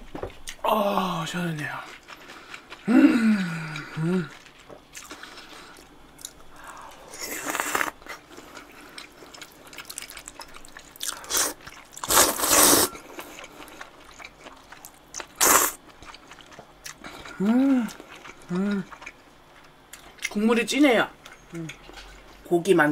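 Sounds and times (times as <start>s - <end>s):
chewing clicks: 3.7s - 12.2s
noodles being slurped: 6.9s - 14.3s, 15.3s - 15.8s.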